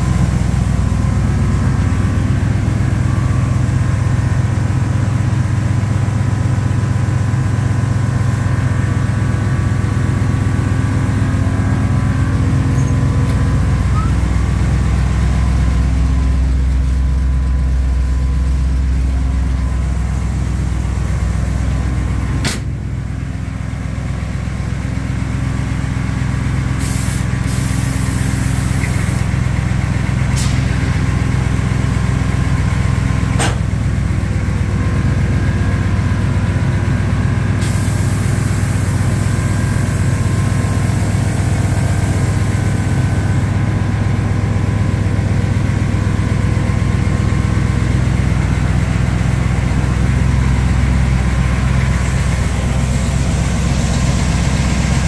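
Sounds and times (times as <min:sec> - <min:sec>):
engine humming steadily: 0:00.0 - 0:55.0
sharp click: 0:22.4 - 0:22.7, 0:33.4 - 0:33.6
short high hiss: 0:26.8 - 0:29.3.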